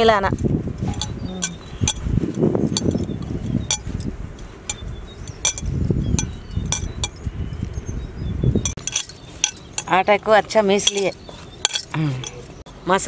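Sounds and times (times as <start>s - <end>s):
bangles clinking: 0.7s - 8.0s, 8.6s - 10.0s, 10.6s - 12.6s.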